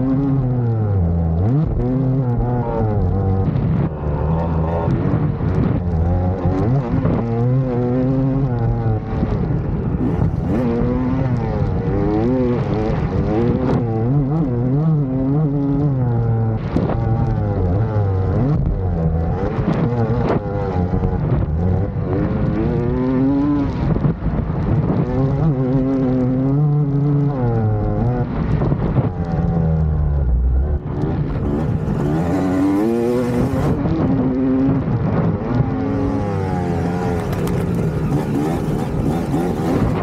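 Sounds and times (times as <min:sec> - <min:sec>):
motocross bike engine revving: 0:09.9 - 0:15.4, 0:30.8 - 0:34.8, 0:35.6 - 0:40.0.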